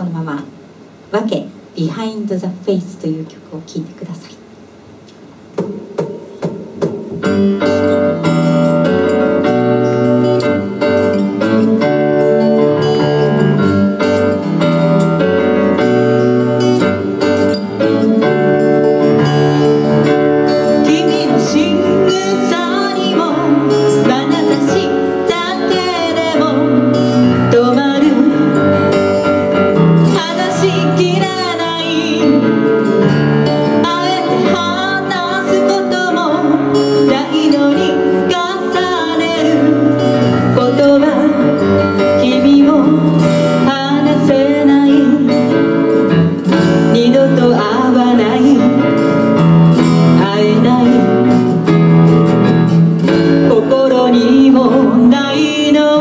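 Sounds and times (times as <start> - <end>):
acoustic guitar: 5.5 - 56.0
keyboard chords: 5.6 - 56.0
woman singing: 20.5 - 29.4, 30.0 - 51.8, 53.2 - 56.0.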